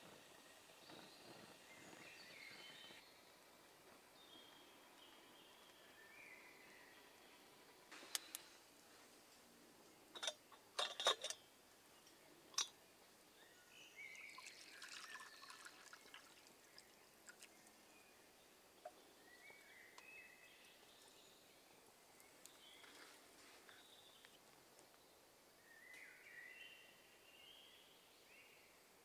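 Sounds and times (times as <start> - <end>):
metal kettle lid clinks: 10.2 - 11.4
water pouring into wooden cup: 14.1 - 17.8.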